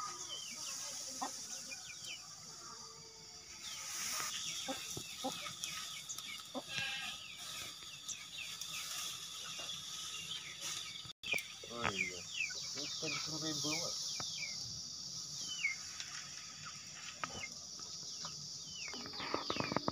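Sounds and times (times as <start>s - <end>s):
farm animals calling: 0.0s - 13.9s.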